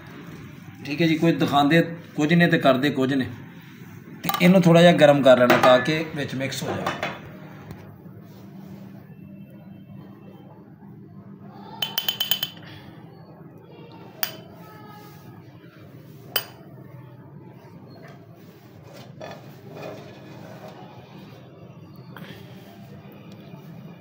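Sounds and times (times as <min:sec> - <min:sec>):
frying pan clinking on burner stand: 0:11.8 - 0:12.6.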